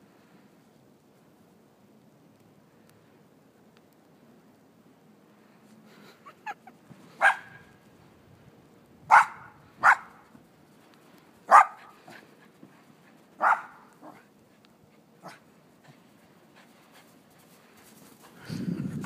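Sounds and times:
small dog barking: 7.2 - 7.7, 9.1 - 10.2, 11.5 - 11.9, 13.4 - 14.3, 15.2 - 15.4.

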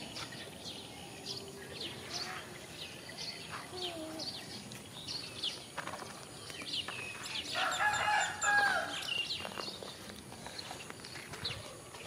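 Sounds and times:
small birds chirping: 0.0 - 12.0
rooster crowing: 7.5 - 9.0.

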